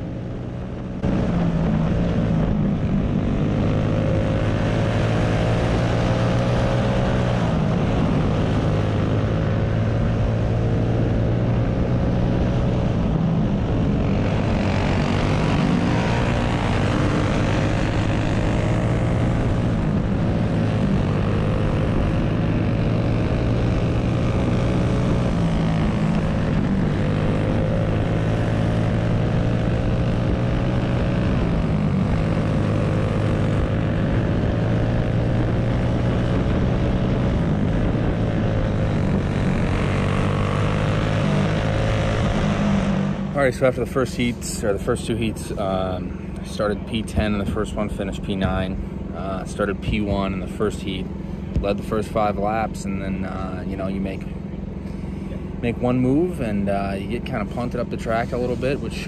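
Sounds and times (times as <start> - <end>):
kart engine revving: 1.0 - 59.0.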